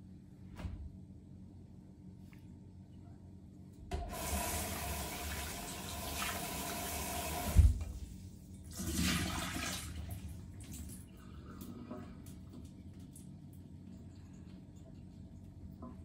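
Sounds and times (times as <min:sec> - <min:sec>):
water splashing into steel sink: 0:08.7 - 0:10.9.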